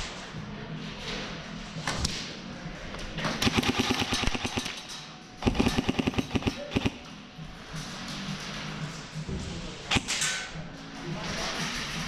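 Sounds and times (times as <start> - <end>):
airsoft gun firing full auto: 3.4 - 4.8, 5.4 - 7.0.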